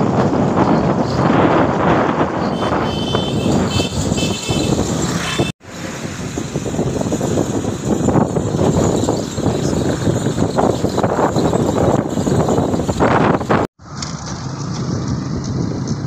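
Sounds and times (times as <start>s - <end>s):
vehicle engine and road noise: 0.0s - 16.0s
wind rushing past microphone: 0.0s - 16.0s.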